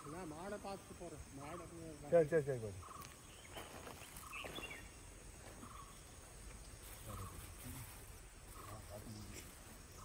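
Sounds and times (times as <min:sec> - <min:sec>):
faint bird calls: 0:01.3 - 0:10.0
high bird chirp: 0:02.7 - 0:06.3.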